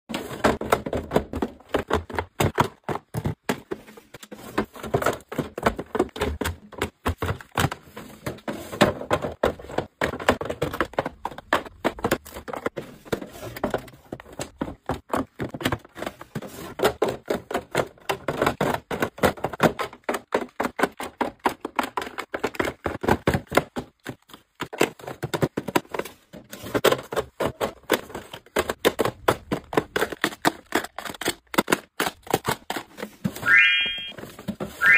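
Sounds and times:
plastic drawers sliding: 0.1 - 14.5.

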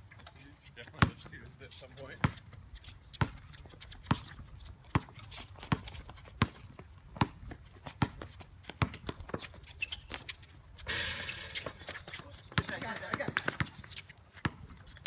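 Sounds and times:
basketball bouncing: 4.9 - 9.4, 10.9 - 14.8.

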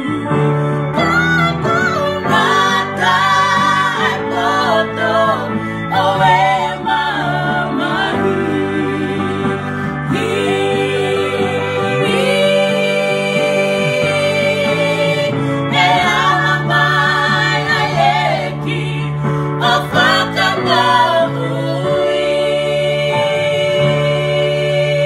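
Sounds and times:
women singing gospel in harmony: 0.0 - 25.0.

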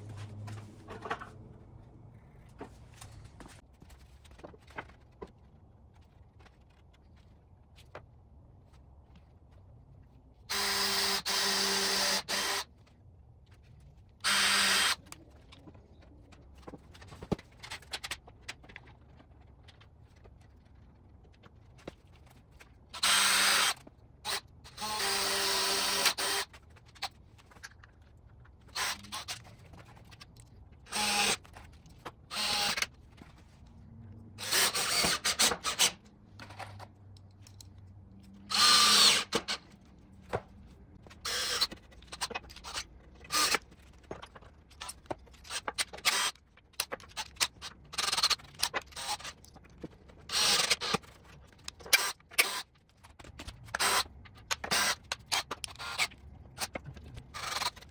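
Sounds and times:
cordless drill driving screws: 10.5 - 12.7, 14.2 - 15.0, 23.0 - 26.5, 32.3 - 32.9, 34.4 - 35.9, 38.5 - 39.6, 41.2 - 41.7, 50.3 - 51.0, 51.9 - 52.6, 54.6 - 56.1.

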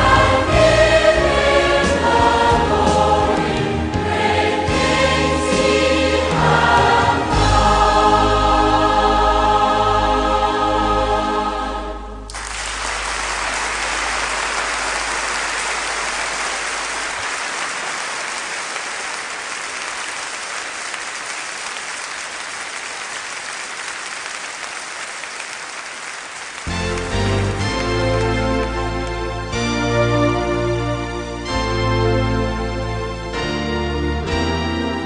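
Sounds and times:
choir singing: 0.0 - 12.3
music: 0.0 - 12.4, 26.7 - 35.0
congregation applauding: 12.3 - 29.7.

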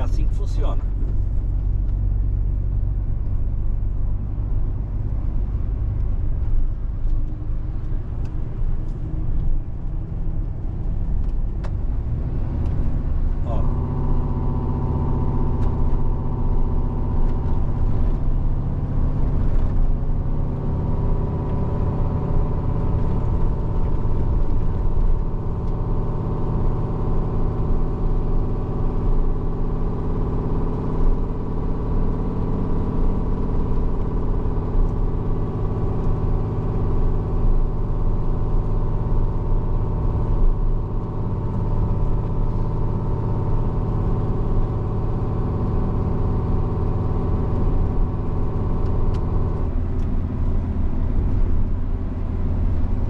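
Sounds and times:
road and tyre noise: 0.0 - 53.0
truck diesel engine drone: 0.0 - 53.0.

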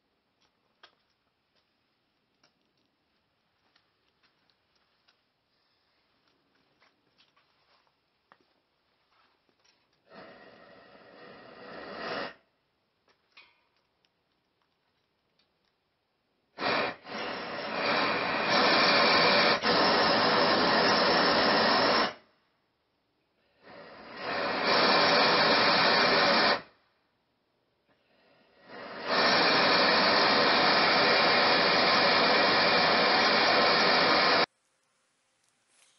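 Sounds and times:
small clicks: 0.3 - 5.3, 13.0 - 16.2.

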